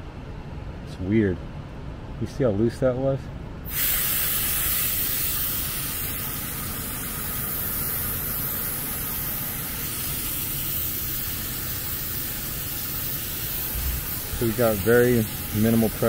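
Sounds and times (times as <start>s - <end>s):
refrigerant hissing from fitting: 3.7s - 16.0s.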